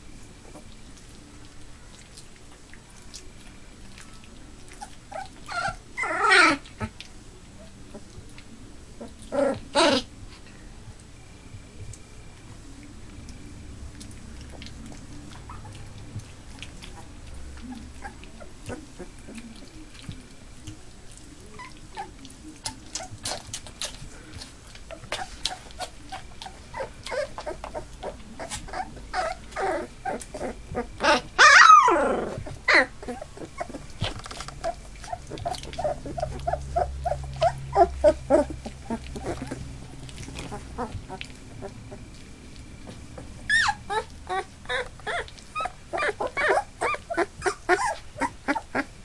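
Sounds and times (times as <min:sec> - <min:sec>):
puppies whimpering and squeaking: 0:03.4 - 0:10.5, 0:14.0 - 0:49.0
puppy crying loudly: 0:04.8 - 0:06.9, 0:24.9 - 0:33.9, 0:34.6 - 0:39.6, 0:43.5 - 0:48.9.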